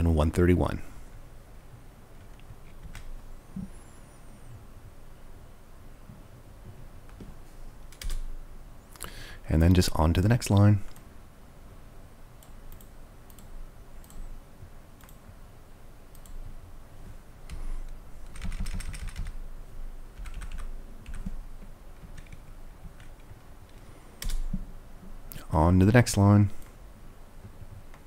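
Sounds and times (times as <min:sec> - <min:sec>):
typing on computer keyboard: 0:07.9 - 0:08.3, 0:18.2 - 0:19.4, 0:20.2 - 0:21.4, 0:22.0 - 0:24.5.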